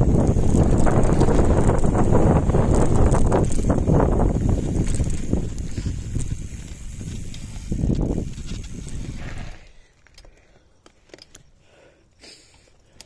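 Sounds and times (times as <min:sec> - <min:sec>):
wind noise on microphone: 0:00.0 - 0:09.8
bike tyre rumble on gravel: 0:00.0 - 0:10.6.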